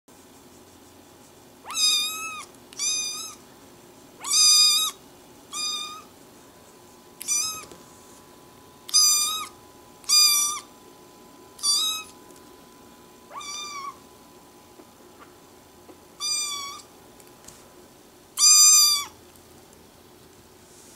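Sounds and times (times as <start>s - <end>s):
kitten meowing: 1.6s - 3.4s, 4.2s - 6.1s, 7.2s - 7.7s, 8.9s - 10.7s, 11.6s - 12.2s, 13.3s - 14.0s, 16.2s - 16.9s, 18.4s - 19.2s.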